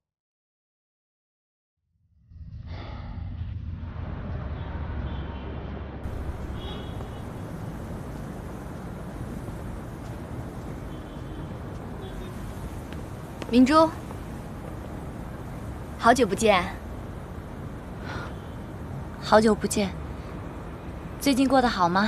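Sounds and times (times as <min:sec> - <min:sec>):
low city rumble: 0:02.0 - 0:22.0.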